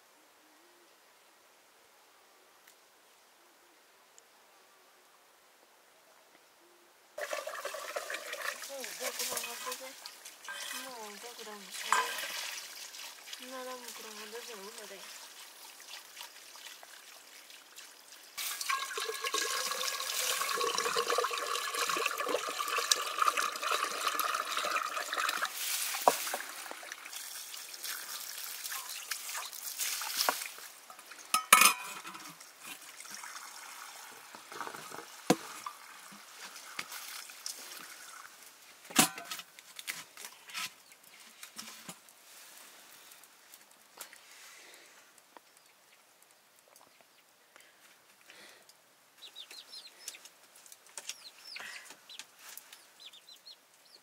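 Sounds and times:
water pouring into metal pot: 7.2 - 39.3
metal vessels knocking: 11.8 - 12.4, 18.5 - 25.2, 31.3 - 32.3.

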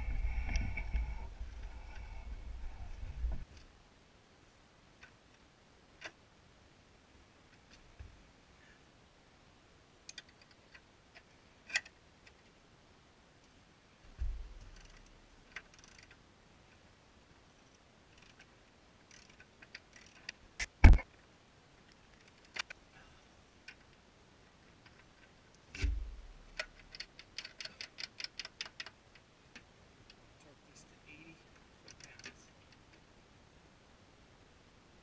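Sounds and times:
dull thumps: 14.1 - 14.6, 25.8 - 26.4
ratchet clicking rapidly: 15.6 - 16.2.

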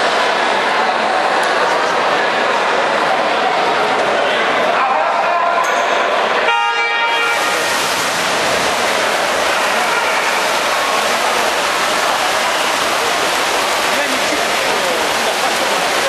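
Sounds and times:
swimmers splashing: 6.5 - 16.0.

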